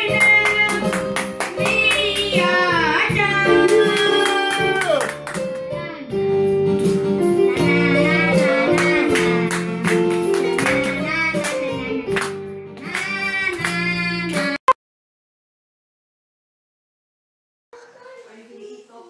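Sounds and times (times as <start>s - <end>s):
boy singing into microphone: 1.6s - 4.6s, 7.4s - 9.5s, 12.8s - 14.6s.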